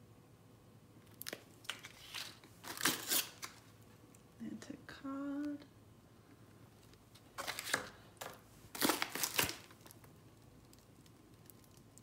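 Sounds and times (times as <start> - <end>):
plastic packs crinkling: 1.1 - 3.7, 7.1 - 10.1.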